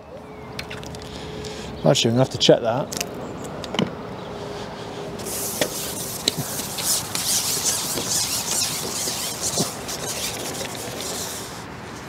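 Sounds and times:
rustling rubbing noise: 5.2 - 12.0.

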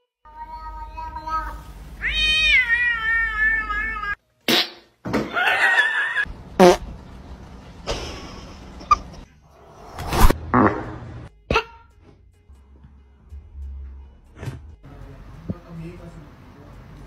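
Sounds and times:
cat meowing: 0.3 - 4.2.

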